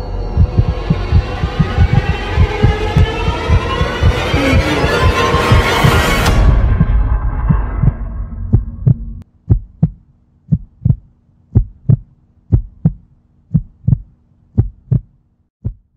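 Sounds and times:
loud noisy swell: 0.0 - 8.4
heartbeat double thump: 0.4 - 15.9.

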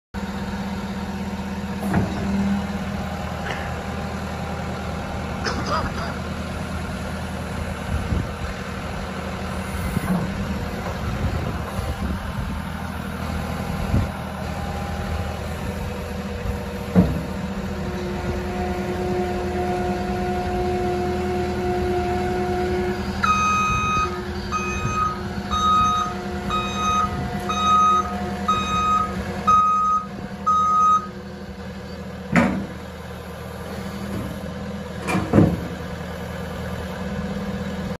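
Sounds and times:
diesel engine running: 0.2 - 38.0
reversing alarm beeping: 23.2 - 31.2.

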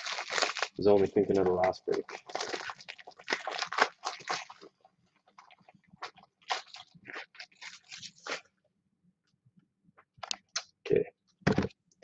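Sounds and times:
plastic packaging crinkling: 0.0 - 4.7, 5.4 - 8.4.

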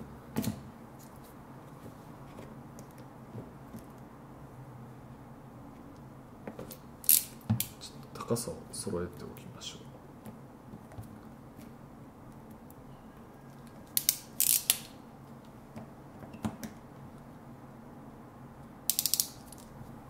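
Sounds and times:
crimping tool ratchet clicking: 18.9 - 19.6.

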